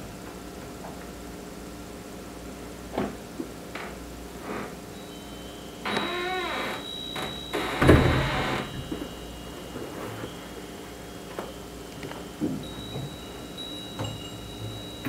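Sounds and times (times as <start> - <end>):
wind chime ringing: 5.0 - 15.0
door creaking: 5.9 - 9.1
door thudding shut: 7.7 - 8.9.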